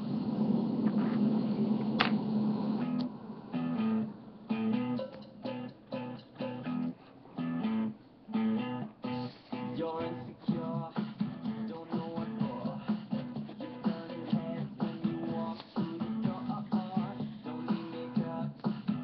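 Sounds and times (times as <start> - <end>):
strummed guitar: 2.8 - 19.0
plucked guitar notes: 3.6 - 9.8.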